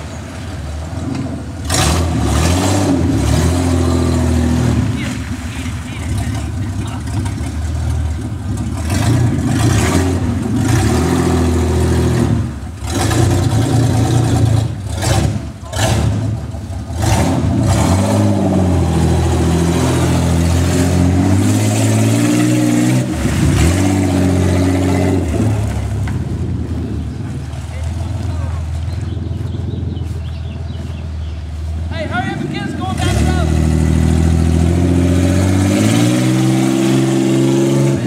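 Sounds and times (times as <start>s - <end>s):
truck churning through mud: 0.0s - 38.0s
truck engine revving: 0.0s - 38.0s.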